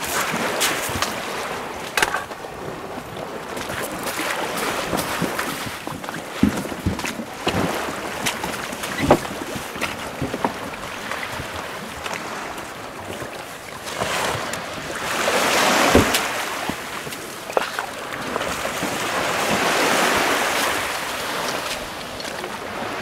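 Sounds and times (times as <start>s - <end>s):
water sloshing around a boat: 0.0s - 23.0s
sharp knocks: 15.9s - 16.3s.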